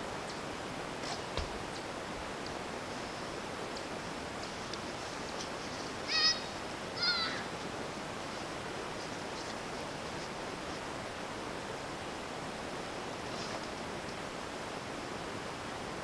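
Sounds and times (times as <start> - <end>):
background hiss: 0.0 - 16.0
high-pitched animal calls: 6.1 - 7.5.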